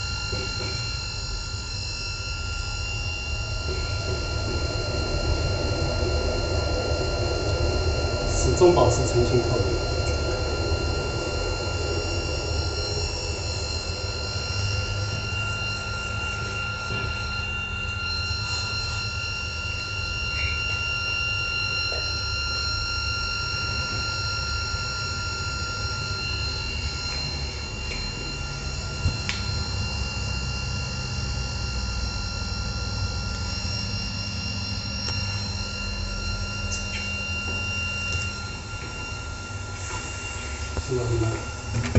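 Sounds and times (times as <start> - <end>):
filtration machine hum and whine: 0.0 - 41.9.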